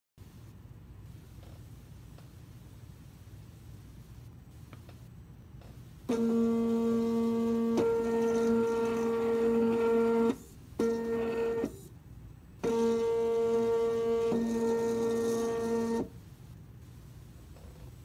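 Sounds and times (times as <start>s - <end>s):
motor mechanical whine: 6.0s - 12.0s, 12.6s - 16.2s.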